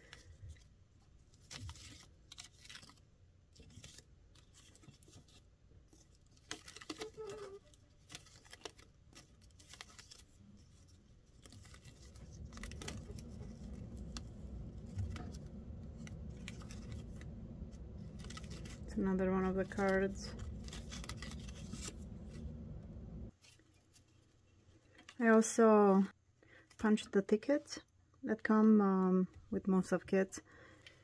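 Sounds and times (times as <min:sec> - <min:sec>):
paper cards flipping and clicking: 0:00.0 - 0:23.6
low rumble: 0:11.7 - 0:23.3.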